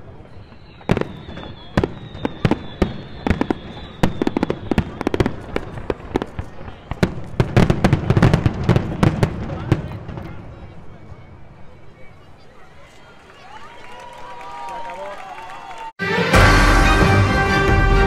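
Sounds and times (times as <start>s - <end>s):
high firework whistle: 0.0s - 5.7s
fireworks bangs and crackles: 0.0s - 11.6s.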